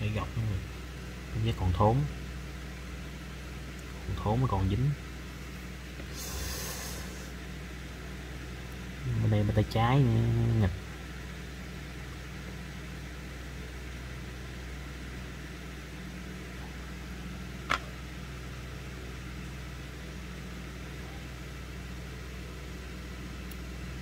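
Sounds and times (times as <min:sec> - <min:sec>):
low mechanical hum: 0:00.0 - 0:24.0
hiss: 0:06.1 - 0:07.4.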